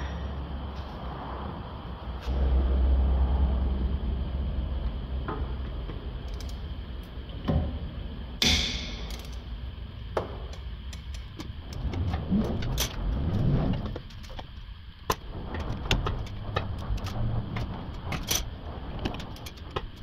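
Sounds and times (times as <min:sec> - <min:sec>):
low rumble: 0:00.0 - 0:20.0
ratchet clicking: 0:08.8 - 0:09.4.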